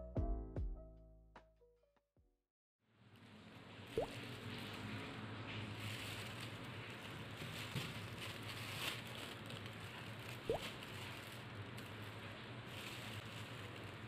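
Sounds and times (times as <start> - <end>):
plastic bag crinkling: 3.0 - 14.0.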